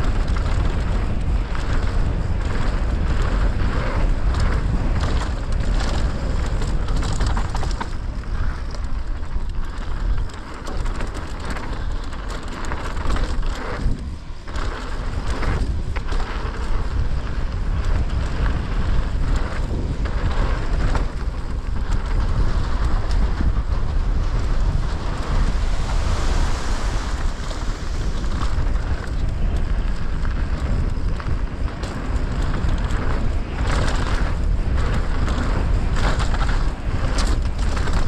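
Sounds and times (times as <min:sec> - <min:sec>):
bike knocking and rattling: 0:00.0 - 0:38.0
deep rumble: 0:00.0 - 0:38.0
wind rushing over microphone: 0:00.0 - 0:38.0.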